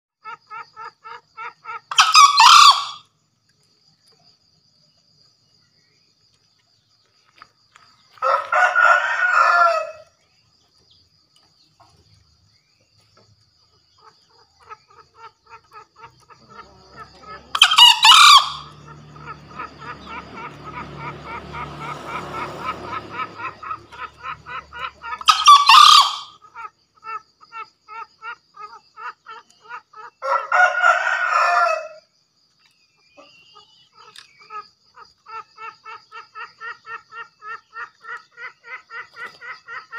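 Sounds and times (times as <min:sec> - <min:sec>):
junglefowl crowing: 0:00.2 - 0:03.1, 0:08.2 - 0:10.2, 0:14.0 - 0:32.1
faint rhythmic chirping: 0:00.2 - 0:39.9.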